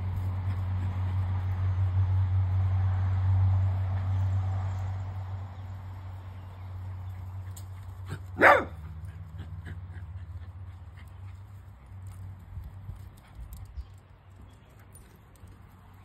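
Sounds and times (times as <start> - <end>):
small dog barking: 8.3 - 8.8.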